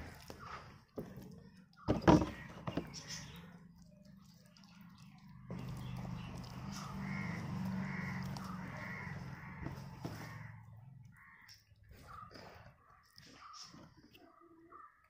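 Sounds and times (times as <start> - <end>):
crows cawing: 2.2 - 3.4, 5.1 - 13.7.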